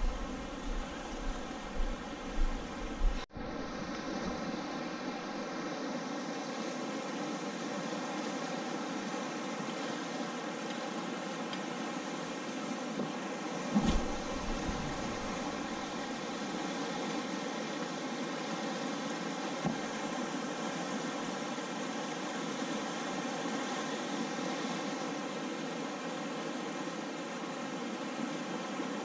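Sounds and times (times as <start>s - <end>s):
river rushing over rapids: 3.6s - 29.0s
brief thump: 13.7s - 15.3s.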